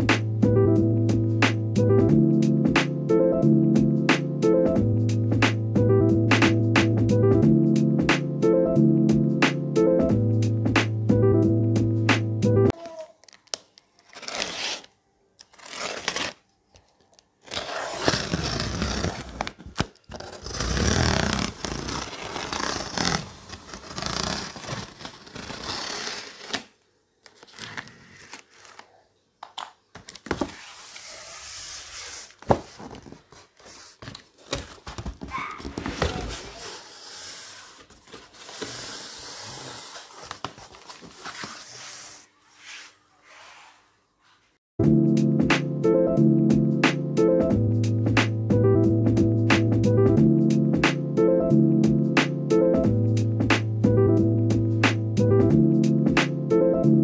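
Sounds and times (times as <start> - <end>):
plastic packaging rustling: 12.9 - 29.0, 32.2 - 42.3
packing tape tearing: 13.2 - 28.9
cardboard scraping: 14.0 - 16.4, 17.4 - 26.7, 30.2 - 43.8.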